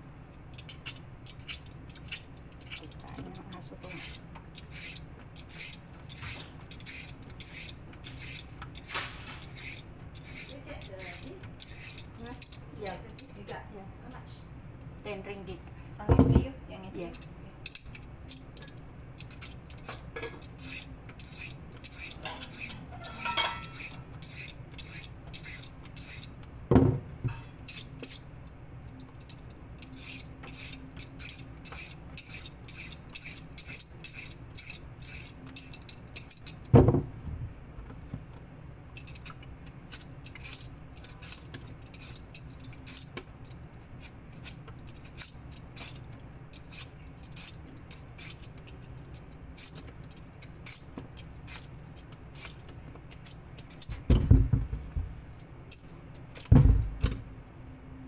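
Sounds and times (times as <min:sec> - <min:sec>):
dull thumps: 0:54.0 - 0:55.2.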